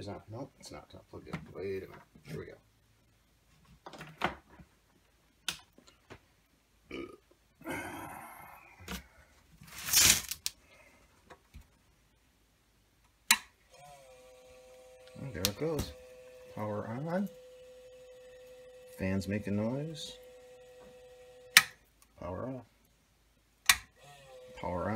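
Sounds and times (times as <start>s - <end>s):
cooling fan whine: 13.7s - 21.8s
power switch click: 23.7s - 23.9s.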